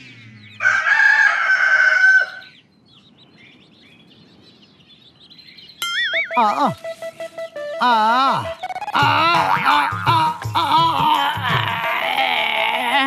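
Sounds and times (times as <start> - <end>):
small birds chirping: 0.0 - 1.0, 2.1 - 13.0
rooster crowing: 0.6 - 2.4.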